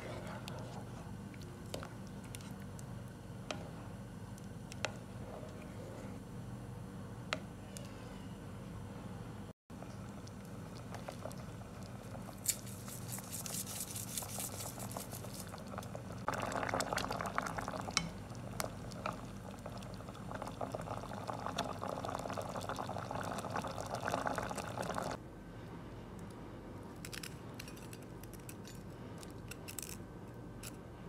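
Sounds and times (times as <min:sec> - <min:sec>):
pot simmering and bubbling: 0:09.7 - 0:25.2
wooden spoon stirring: 0:10.0 - 0:16.1.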